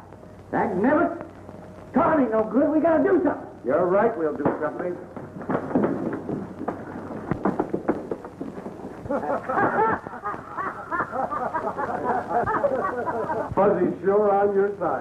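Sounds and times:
man talking: 1.9 - 5.1, 13.5 - 15.0
sharp knocks: 4.4 - 8.8.

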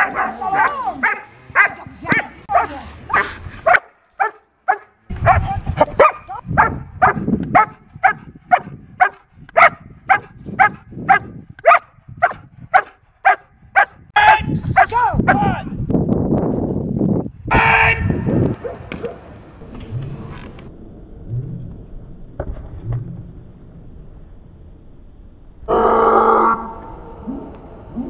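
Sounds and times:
dog barking sharply: 2.5 - 5.4, 6.0 - 14.0.

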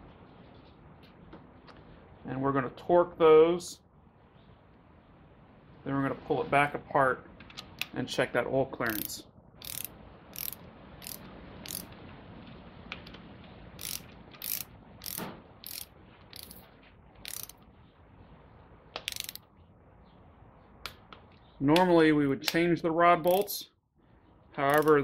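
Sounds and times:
torque wrench clicking: 8.9 - 11.9, 13.8 - 16.6, 17.2 - 17.6, 19.0 - 19.4, 23.2 - 23.5, 24.7 - 25.0.

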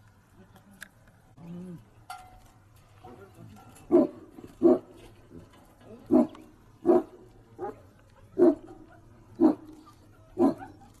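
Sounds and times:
large dog barking: 3.9 - 5.0, 6.1 - 11.0.

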